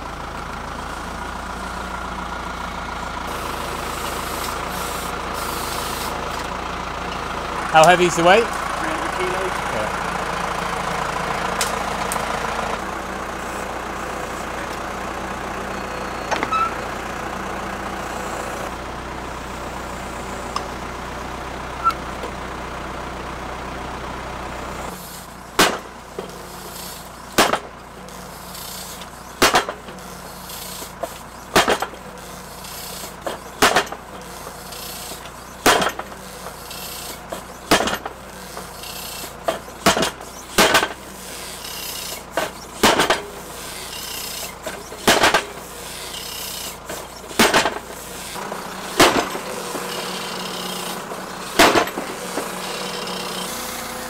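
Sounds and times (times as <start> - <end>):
tractor engine running: 0.0 - 54.0
post driver striking wooden post: 27.4 - 27.7, 29.4 - 29.8, 31.0 - 31.9, 33.2 - 34.0, 35.6 - 36.6, 37.3 - 38.7, 39.4 - 41.0, 42.0 - 43.4, 44.6 - 45.6, 46.6 - 47.9, 51.6 - 52.1.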